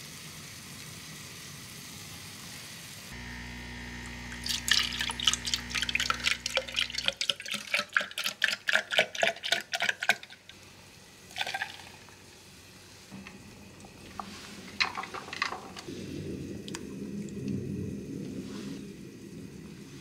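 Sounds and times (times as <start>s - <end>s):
coffee pouring with a splash: 4.0s - 10.5s, 11.2s - 12.3s
milk pouring over ice cubes: 4.3s - 10.5s, 11.2s - 12.2s
ice clinking in a metal tumbler: 4.3s - 10.6s, 11.3s - 12.2s, 13.2s - 15.9s.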